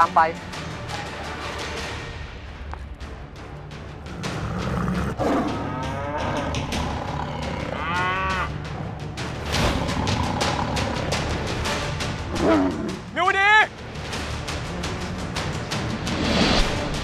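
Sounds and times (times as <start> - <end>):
tense background music: 0.0 - 17.0
tiger roaring: 4.1 - 8.5, 9.7 - 11.3, 12.3 - 13.0.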